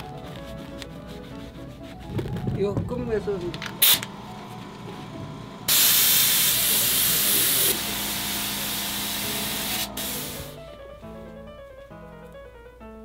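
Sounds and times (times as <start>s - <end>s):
air spray gun hissing: 3.8s - 4.0s, 5.7s - 10.6s.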